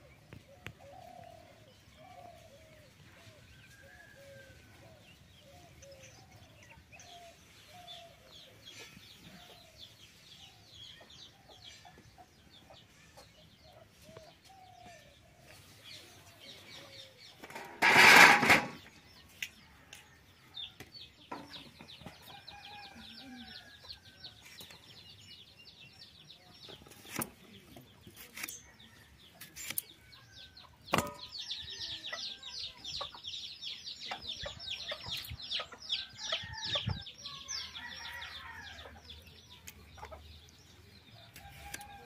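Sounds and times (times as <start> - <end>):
small birds chirping: 0.0 - 17.8, 18.7 - 42.0
chickens clucking: 26.6 - 42.0.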